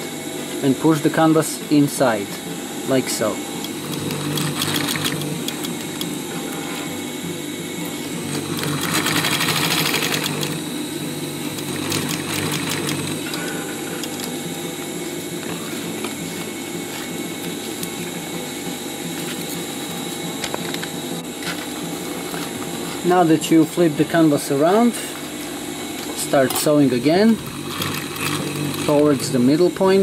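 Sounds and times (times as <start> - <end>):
sewing machine stitching: 3.6 - 6.8, 8.2 - 10.7, 11.4 - 14.1, 27.3 - 29.4.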